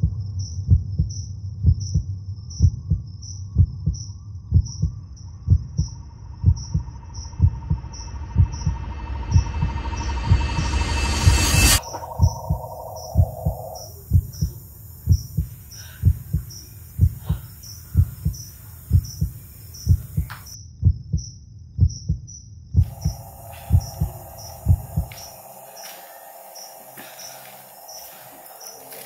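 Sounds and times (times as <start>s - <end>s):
heartbeat thuds: 0.0s - 29.0s
faint high pulsing tone: 4.5s - 20.6s, 22.8s - 29.0s.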